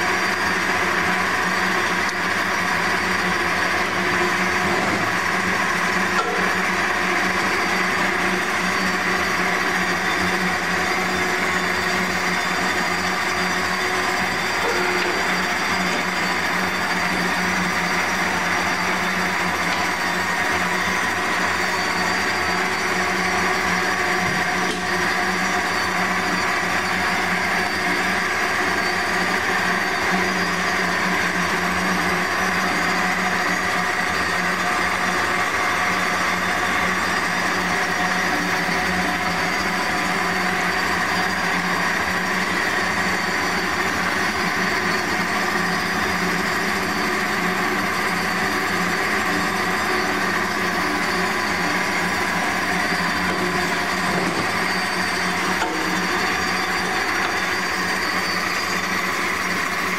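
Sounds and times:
band saw humming: 0.0 - 28.8, 42.3 - 59.9.

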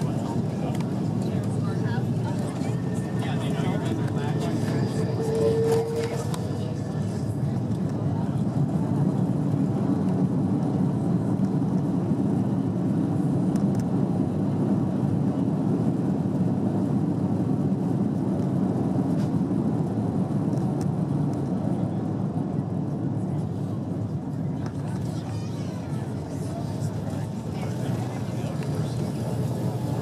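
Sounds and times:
airliner cabin rumble: 0.0 - 30.0.

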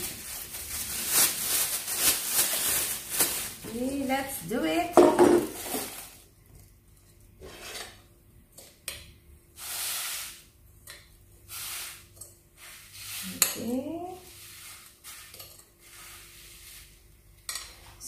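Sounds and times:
sugar and flour pouring into bag: 0.0 - 3.9, 9.6 - 10.4.

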